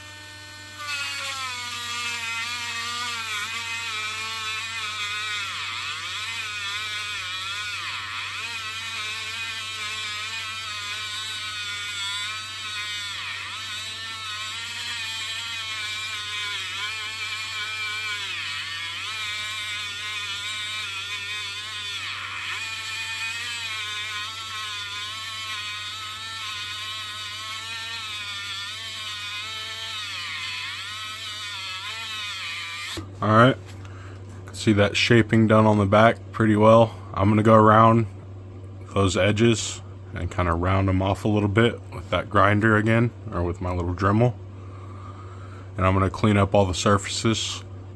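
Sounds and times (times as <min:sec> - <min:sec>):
rotary tool grinding steel: 0:00.0 - 0:33.0.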